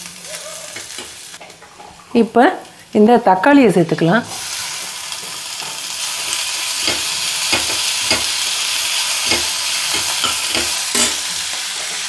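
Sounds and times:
vegetables sizzling in hot oil: 0.0 - 12.0.

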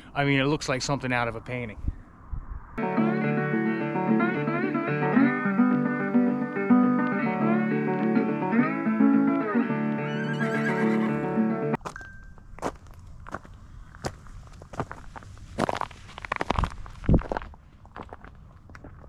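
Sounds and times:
plucked guitar with sliding notes: 2.8 - 11.8.

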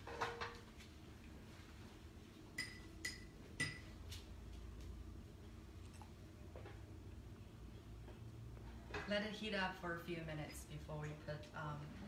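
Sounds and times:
metal cookware clinking: 2.6 - 3.9.

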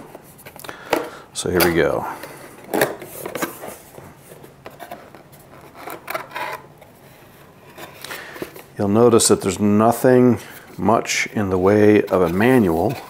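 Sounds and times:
cardboard rustling and scraping: 1.7 - 8.8, 11.6 - 13.0.

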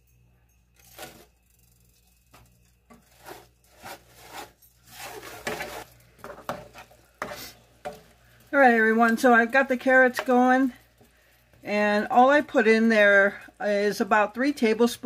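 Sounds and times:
spatula scraping frying pan: 3.0 - 11.2.

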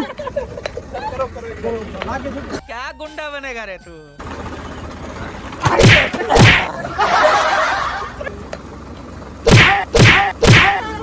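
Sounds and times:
water balloons bursting: 5.6 - 6.7, 9.5 - 10.8.

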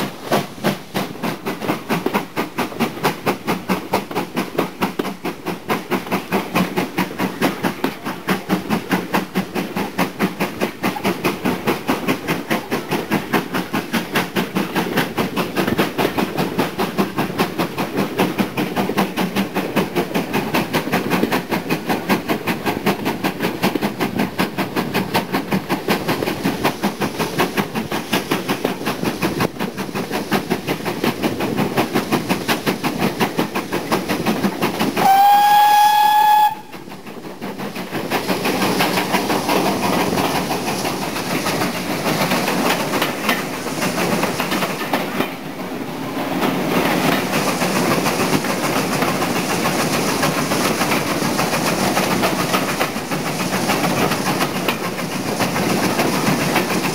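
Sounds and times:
train rhythmic clatter: 0.0 - 56.9
steam locomotive whistle: 35.0 - 36.8.

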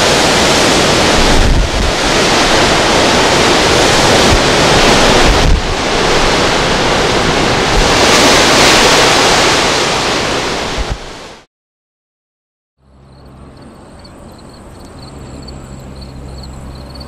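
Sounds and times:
storm waves breaking on shore: 0.0 - 11.5
strong wind gusting over microphone: 0.0 - 11.5, 13.0 - 17.0.

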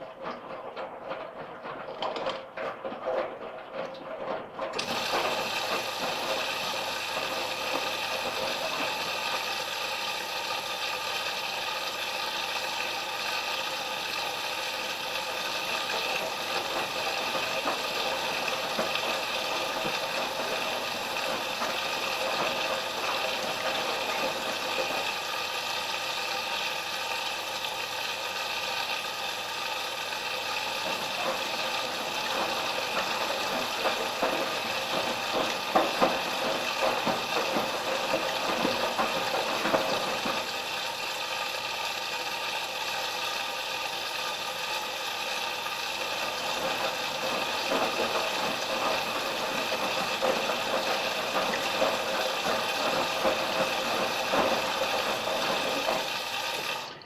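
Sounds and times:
washing machine water rushing: 0.0 - 57.0.

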